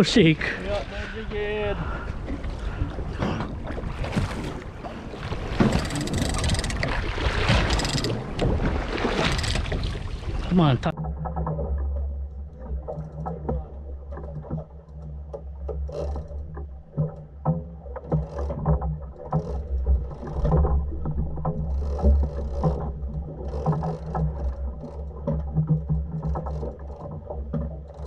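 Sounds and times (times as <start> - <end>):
boat engine droning: 0.0 - 28.0
water splashing against hull: 0.0 - 28.0
clicks and knocks: 5.6 - 8.6.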